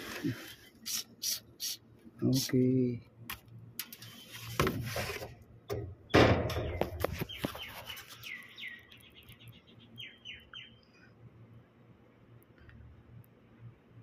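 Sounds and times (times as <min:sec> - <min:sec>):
spray bottle spraying: 0:00.8 - 0:01.8
bird chirping: 0:06.1 - 0:11.2.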